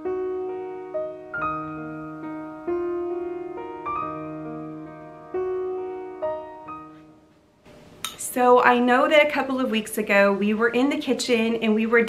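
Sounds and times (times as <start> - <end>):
gentle solo piano music: 0.0 - 7.3.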